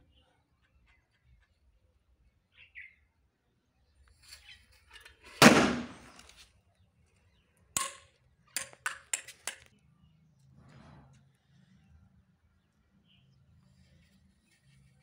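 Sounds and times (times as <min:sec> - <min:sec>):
firecracker bang: 0:05.4 - 0:06.2.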